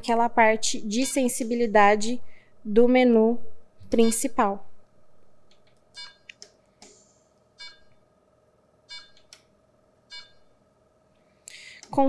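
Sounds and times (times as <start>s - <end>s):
faint steady hum: 0.0s - 12.0s
short electronic beeps: 6.0s - 6.3s, 7.6s - 8.0s, 8.9s - 9.3s, 10.1s - 10.5s.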